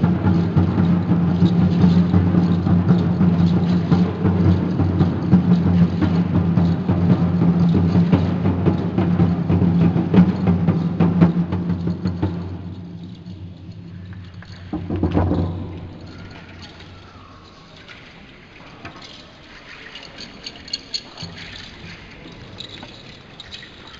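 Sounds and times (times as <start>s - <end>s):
large drum beaten steadily: 0.0s - 17.1s
rattles clicking: 0.0s - 23.9s.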